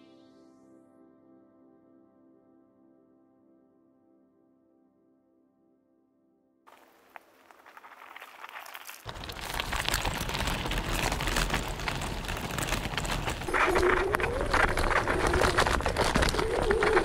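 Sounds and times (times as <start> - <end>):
tyres crackling over dirt: 6.7 - 17.0
wind rumble on microphone: 9.1 - 17.0.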